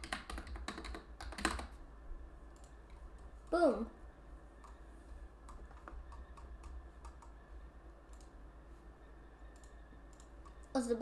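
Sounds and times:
keyboard and mouse clicks: 0.0 - 1.8, 2.5 - 3.0, 5.4 - 7.4, 8.1 - 8.4, 9.5 - 10.8
low steady hum: 0.0 - 11.0.

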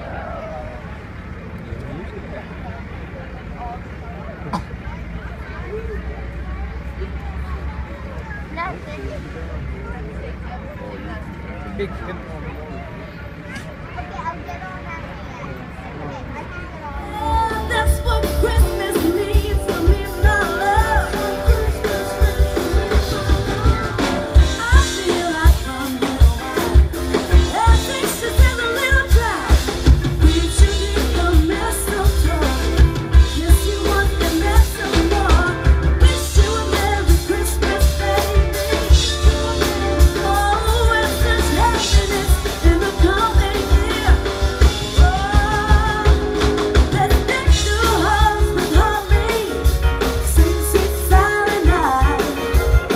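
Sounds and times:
guitar and keyboard: 17.0 - 52.9
drum kit beat: 17.1 - 52.9
person singing: 17.1 - 52.9.

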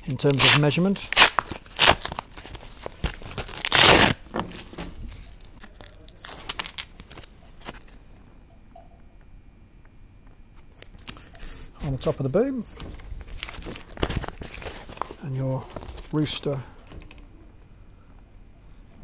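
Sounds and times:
plastic packaging ripping: 0.1 - 7.8, 13.3 - 16.2.

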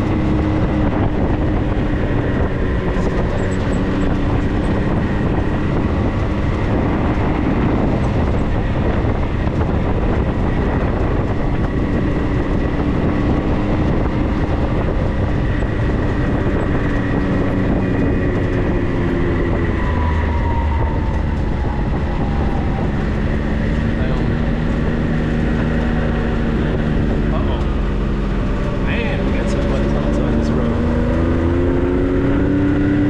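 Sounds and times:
vehicle engine rumble and rattle: 0.0 - 33.0.

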